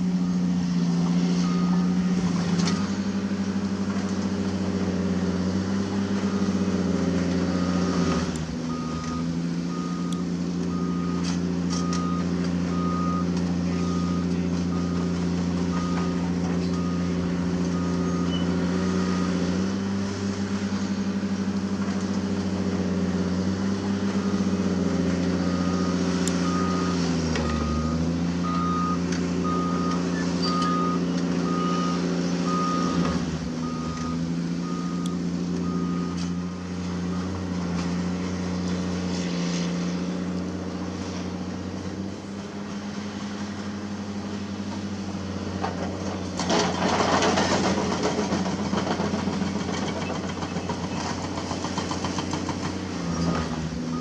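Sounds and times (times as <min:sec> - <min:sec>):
excavator diesel engines running: 0:00.0 - 0:54.0
travel alarm beeping: 0:08.7 - 0:17.2, 0:25.5 - 0:36.5, 0:53.3 - 0:54.0.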